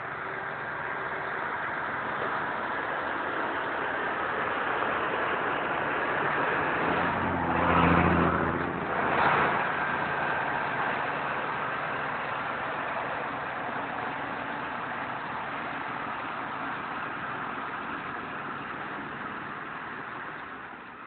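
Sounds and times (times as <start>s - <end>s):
diesel dump truck driving by: 0.0s - 21.0s.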